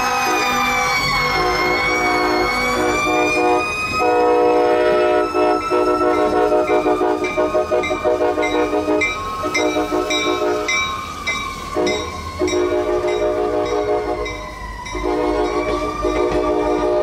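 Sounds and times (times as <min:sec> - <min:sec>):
train air horn blasts: 0:00.0 - 0:10.8, 0:11.7 - 0:17.0
siren wailing: 0:00.0 - 0:17.0
bell clanging: 0:06.7 - 0:15.7.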